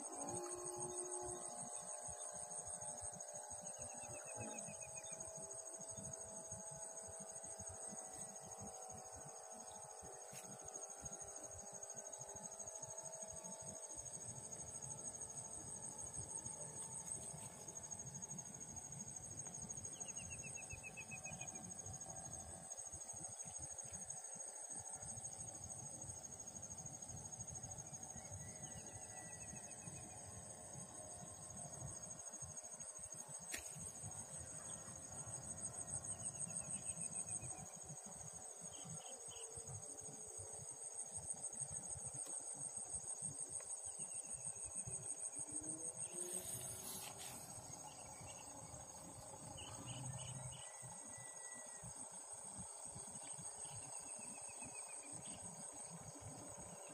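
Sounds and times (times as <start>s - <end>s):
insects trilling: 0.0s - 56.9s.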